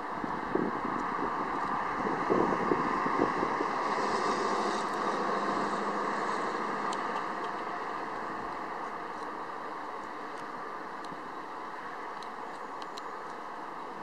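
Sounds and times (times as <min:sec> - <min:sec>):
outdoor rushing noise: 0:00.0 - 0:12.1.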